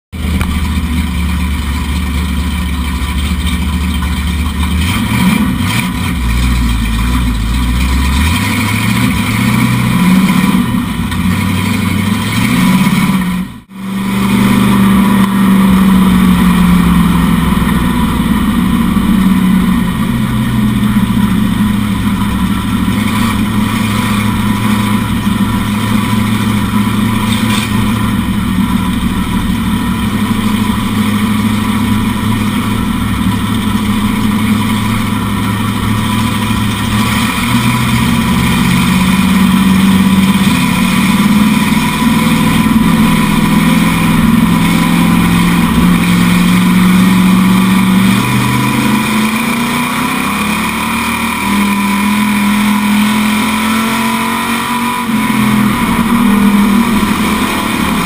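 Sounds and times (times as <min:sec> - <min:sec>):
race car engine accelerating: 0:00.1 - 0:58.0.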